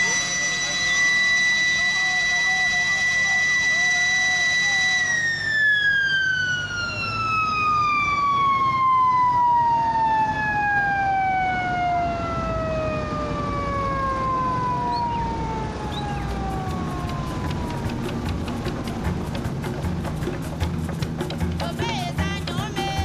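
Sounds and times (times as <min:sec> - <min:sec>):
siren winding down: 0:00.0 - 0:19.0.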